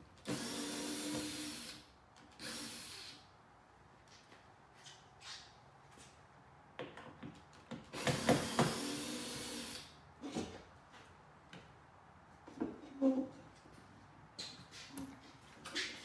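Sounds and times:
cordless drill running: 0:00.2 - 0:01.8, 0:02.4 - 0:03.2, 0:08.0 - 0:09.9.

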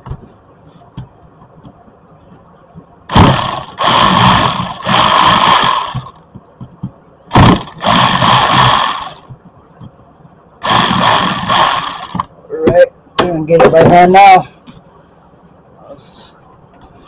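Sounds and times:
cordless electric ratchet running: 0:03.1 - 0:06.2, 0:07.4 - 0:09.3, 0:10.6 - 0:12.3.

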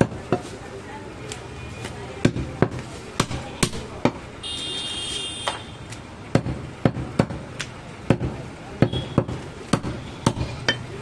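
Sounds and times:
cleaver chopping on wooden block: 0:06.3 - 0:07.4, 0:08.1 - 0:10.9.

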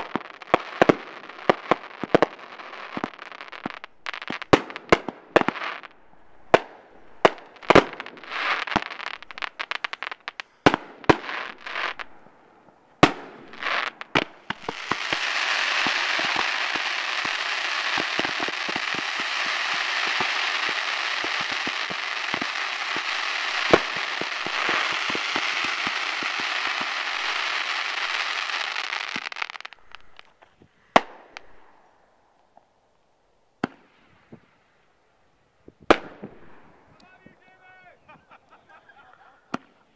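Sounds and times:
firework bangs: 0:00.0 - 0:31.8, 0:35.8 - 0:38.0
firework crackling: 0:00.0 - 0:31.8.

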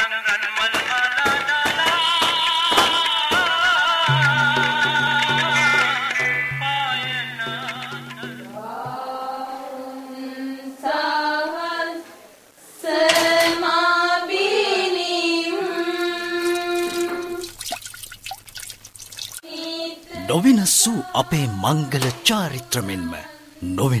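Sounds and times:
person singing jingle: 0:14.3 - 0:17.5, 0:19.5 - 0:24.0.

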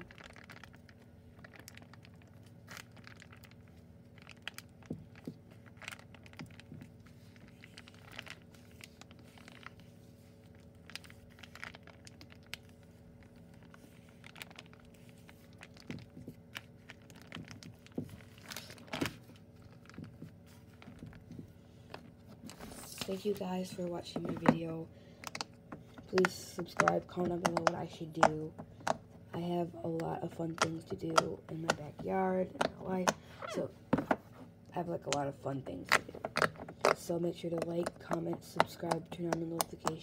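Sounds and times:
plastic bag crinkling: 0:00.0 - 0:29.3.

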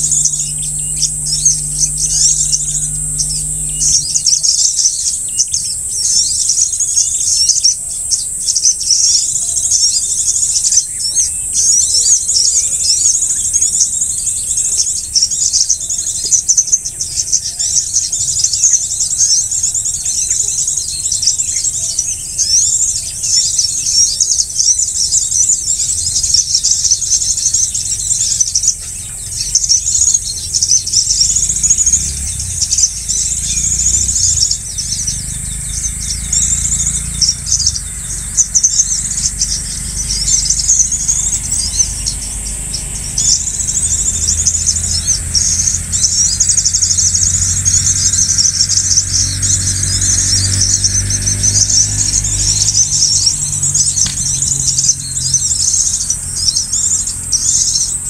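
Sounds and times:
high insect-like hiss: 0:00.0 - 0:50.0
small birds chirping: 0:00.0 - 0:58.0.

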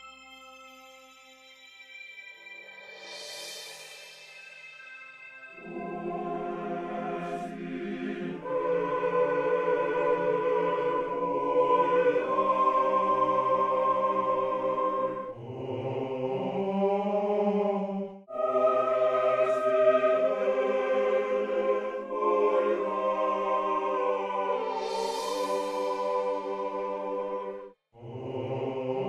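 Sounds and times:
slow sustained chords music: 0:00.0 - 0:09.5, 0:24.6 - 0:27.7.

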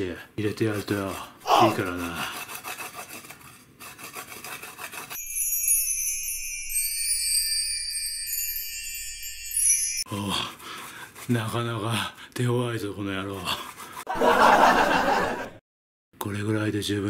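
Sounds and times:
ginger rasping on metal grater: 0:00.6 - 0:05.2, 0:10.4 - 0:12.1, 0:13.0 - 0:14.1
high tinkly music jingle: 0:05.2 - 0:10.1.

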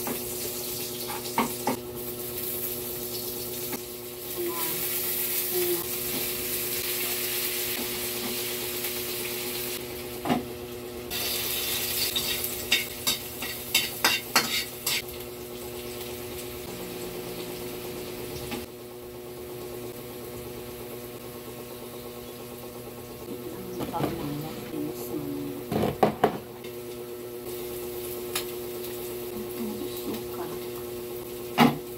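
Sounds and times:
food sizzling in a hot pan: 0:00.0 - 0:10.2, 0:11.1 - 0:18.7, 0:26.8 - 0:31.9
spatula scraping a pan: 0:12.1 - 0:15.0.

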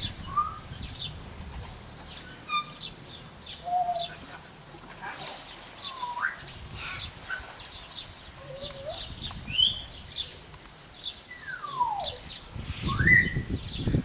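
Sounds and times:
small birds chirping: 0:00.0 - 0:14.0
bird whistles: 0:00.2 - 0:00.6, 0:05.8 - 0:06.5, 0:11.3 - 0:12.2, 0:12.8 - 0:13.5.

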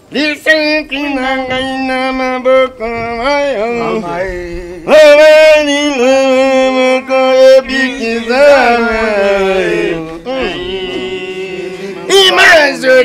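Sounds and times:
man singing unaccompanied: 0:00.0 - 0:13.0.

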